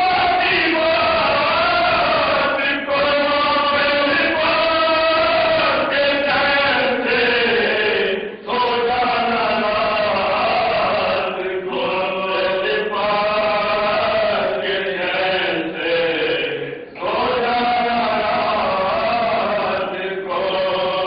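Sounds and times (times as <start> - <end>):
men chanting: 0.0 - 21.0.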